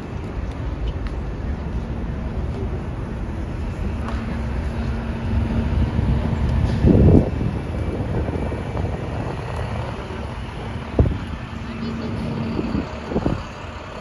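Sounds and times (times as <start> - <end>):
low engine hum: 0.0 - 14.0
traffic rumble: 0.0 - 14.0.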